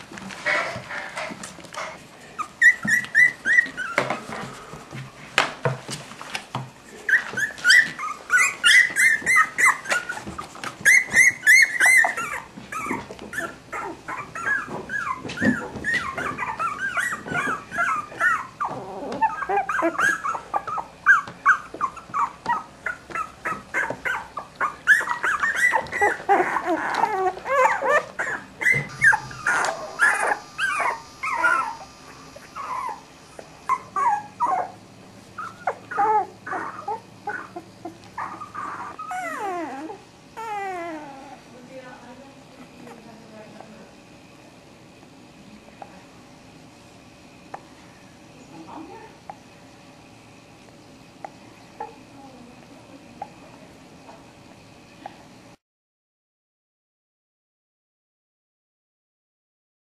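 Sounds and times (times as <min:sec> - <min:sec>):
puppies whimpering and squeaking: 0:00.4 - 0:05.1, 0:05.8 - 0:41.6, 0:42.7 - 0:43.8, 0:51.2 - 0:52.1.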